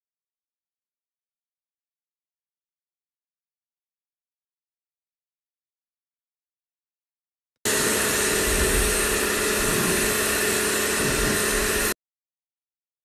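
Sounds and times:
motor hum: 7.7s - 12.0s
pressure washer jet hissing: 7.7s - 12.0s.

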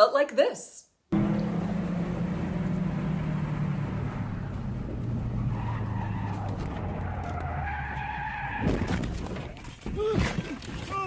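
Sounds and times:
road noise: 1.1s - 9.4s
car engine: 1.1s - 9.5s
tyres squealing: 5.3s - 11.0s.

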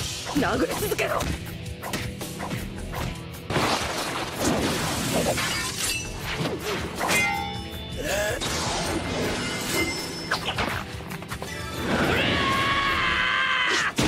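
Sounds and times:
dramatic background music: 0.0s - 14.0s.

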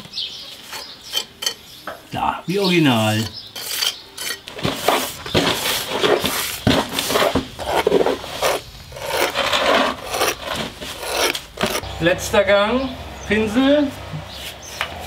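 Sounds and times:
metal tool scraping mortar: 0.6s - 1.6s, 2.9s - 11.8s.

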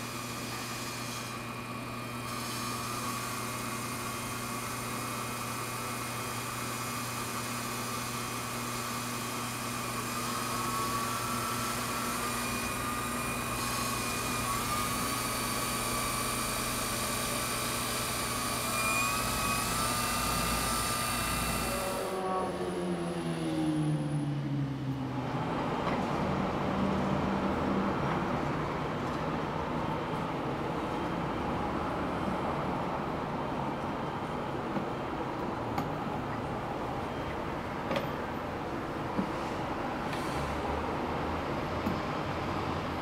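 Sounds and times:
wood lathe running: 0.2s - 22.2s.

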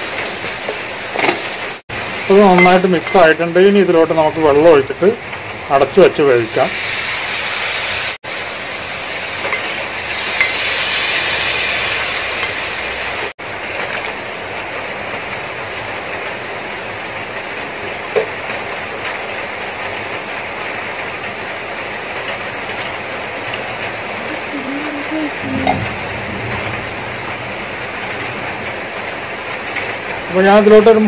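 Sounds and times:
water poured into hot pot hissing: 6.4s - 13.2s.

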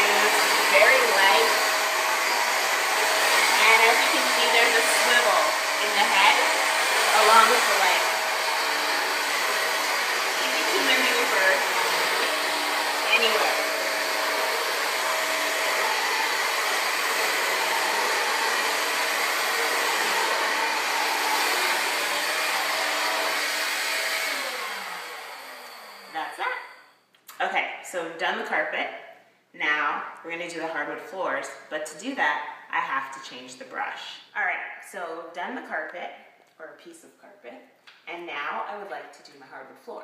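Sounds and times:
vacuum motor winding down: 0.0s - 26.4s
vacuum cleaner running: 0.0s - 26.6s.

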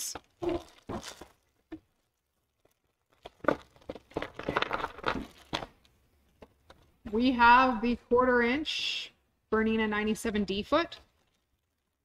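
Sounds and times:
plastic packaging crinkling: 0.2s - 5.9s, 10.9s - 12.0s.

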